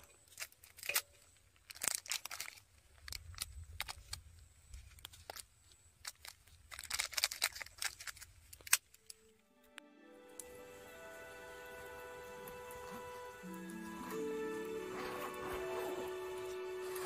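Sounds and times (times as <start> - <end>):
crinkly wrapper torn open: 0.0 - 9.4.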